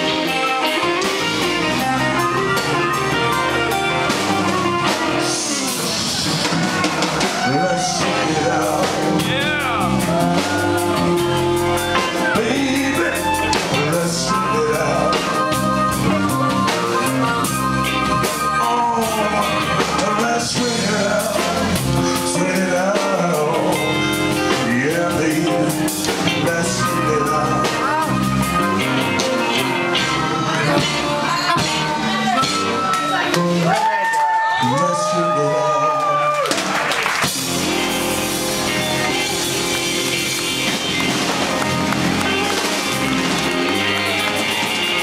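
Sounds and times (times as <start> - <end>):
harmonica: 0.0 - 22.6
electric bass: 0.0 - 34.0, 37.2 - 45.0
person singing: 0.0 - 36.5
drums: 0.0 - 45.0
electric guitars: 0.0 - 45.0.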